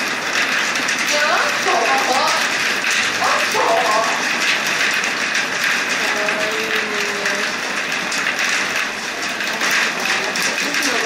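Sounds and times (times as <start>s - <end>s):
crowd talking: 1.1s - 2.5s, 3.2s - 4.4s.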